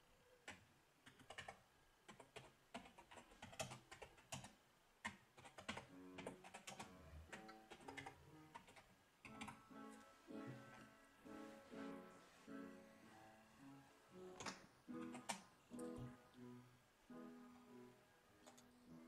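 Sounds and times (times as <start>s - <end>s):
keyboard typing: 0.4s - 11.0s, 14.1s - 16.6s, 18.4s - 18.8s
faint music with held notes: 5.6s - 19.0s.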